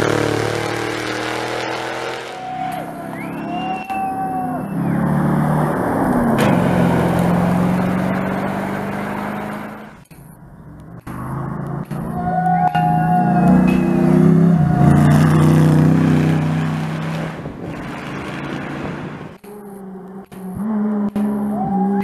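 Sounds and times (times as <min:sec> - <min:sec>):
car passing close: 0:00.0 - 0:22.0
rally car engines running hard: 0:00.0 - 0:22.0.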